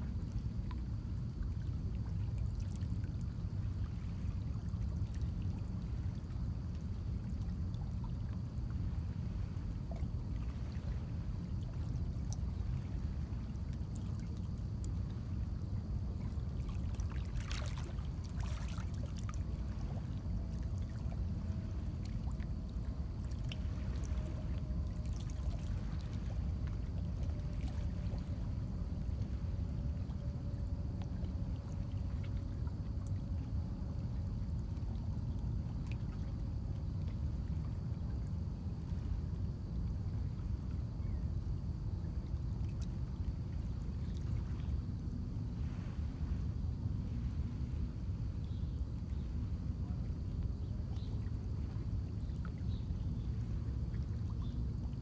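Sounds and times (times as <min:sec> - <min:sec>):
faint steady hum: 0:00.0 - 0:55.0
water splashes: 0:16.2 - 0:29.5.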